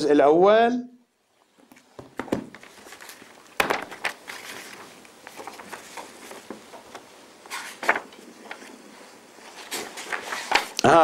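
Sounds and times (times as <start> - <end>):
book pages rustling: 1.5 - 10.9
page flicking: 2.2 - 8.8, 9.5 - 10.9.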